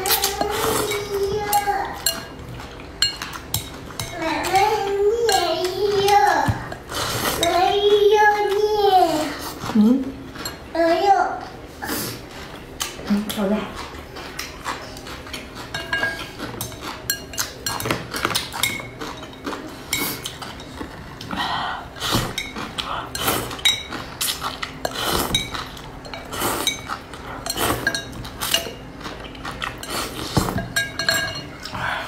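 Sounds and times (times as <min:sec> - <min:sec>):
chewing: 0:12.1 - 0:32.0.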